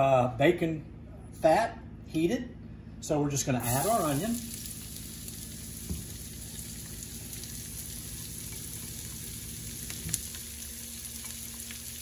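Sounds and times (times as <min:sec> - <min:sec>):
onion sizzling in a skillet: 0:03.6 - 0:12.0.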